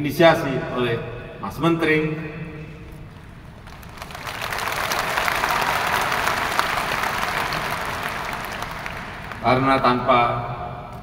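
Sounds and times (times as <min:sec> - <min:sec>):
large crowd applauding: 0:03.1 - 0:10.0.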